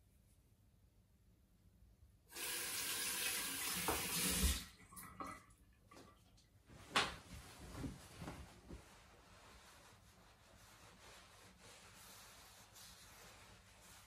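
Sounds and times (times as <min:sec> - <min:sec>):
sink tap running: 0:02.3 - 0:04.6.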